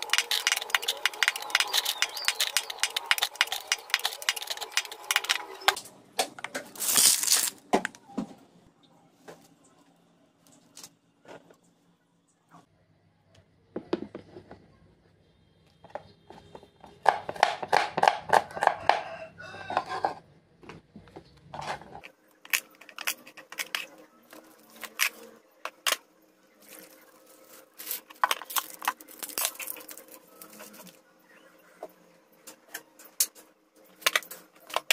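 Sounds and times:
plastic bag crinkling: 0:06.7 - 0:07.6, 0:26.6 - 0:31.0.

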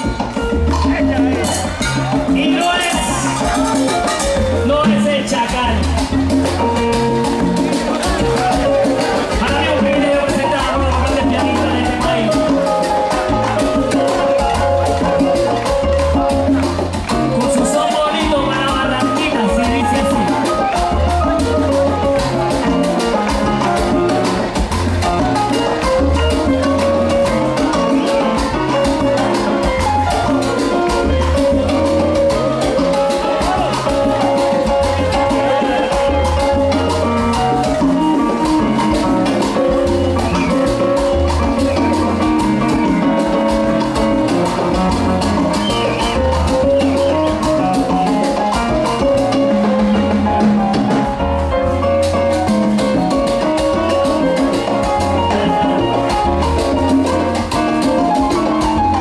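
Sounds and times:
electric bass line: 0:00.0 - 0:59.0
percussion steady beat: 0:00.0 - 0:59.0
salsa band playing: 0:00.0 - 0:59.0.

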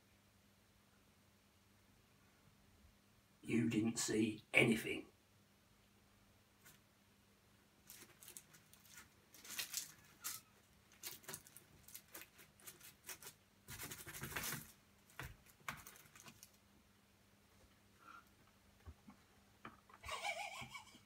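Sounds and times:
crunching and scratching biscuits: 0:07.8 - 0:16.8.

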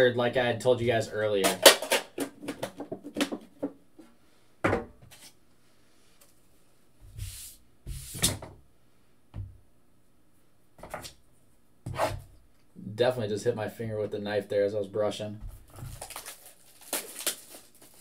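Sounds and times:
knocks and thumps on tabletop: 0:04.6 - 0:05.0.

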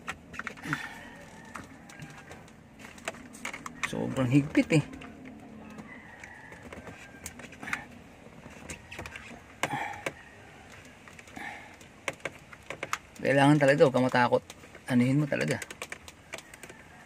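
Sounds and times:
fingers clicking on plastic: 0:00.0 - 0:17.0.

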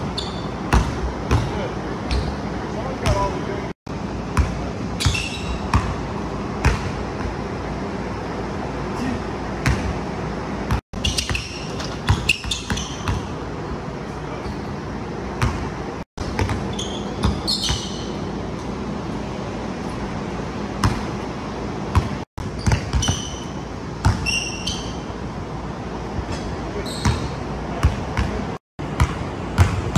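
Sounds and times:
sneakers squeaking: 0:00.0 - 0:03.5, 0:04.2 - 0:07.9, 0:08.8 - 0:29.9
steady background noise: 0:00.0 - 0:29.9
basketball bouncing on wood floor: 0:00.3 - 0:01.5, 0:06.6 - 0:07.0, 0:10.7 - 0:13.3, 0:15.4 - 0:17.9, 0:21.9 - 0:24.3, 0:29.0 - 0:29.9.

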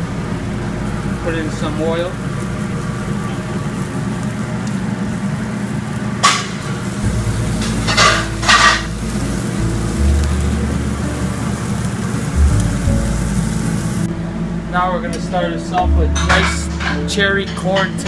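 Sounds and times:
fish sizzling on a grill: 0:00.0 - 0:14.1
steady background hum: 0:00.0 - 0:18.0.

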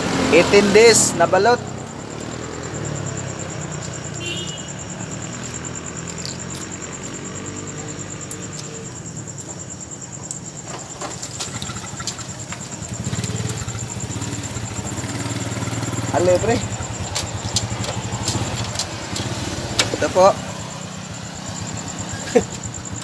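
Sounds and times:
vehicle engines humming: 0:00.0 - 0:23.0.

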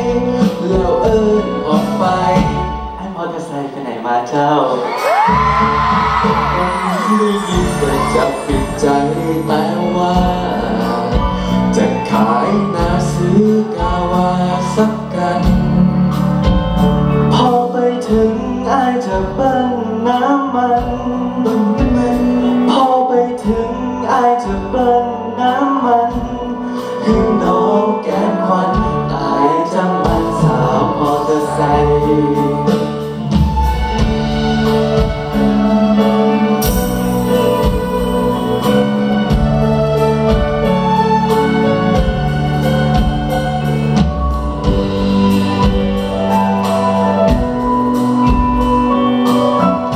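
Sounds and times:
man singing into a microphone: 0:00.0 - 0:16.3, 0:17.1 - 0:33.6
live rock band playing: 0:00.0 - 0:49.9.

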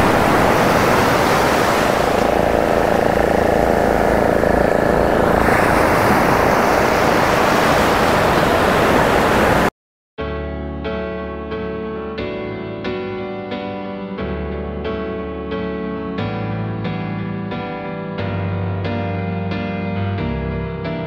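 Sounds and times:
surf breaking on shore: 0:00.0 - 0:09.7.

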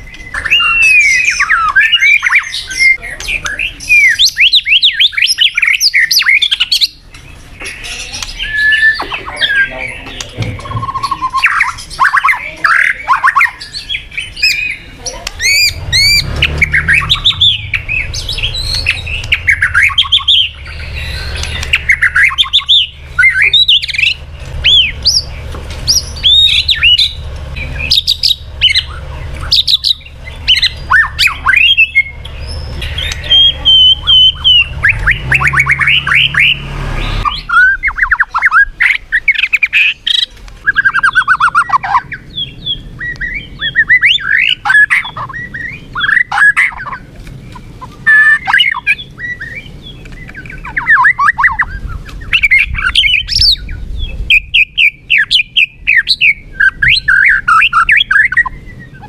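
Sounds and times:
bird singing whistles and trills: 0:00.0 - 0:59.0
low hum: 0:15.2 - 0:38.4.

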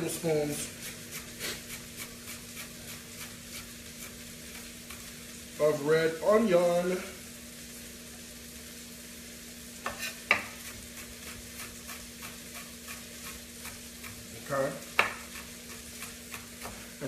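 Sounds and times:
knife chopping on wooden board: 0:09.8 - 0:14.2, 0:14.9 - 0:16.8.

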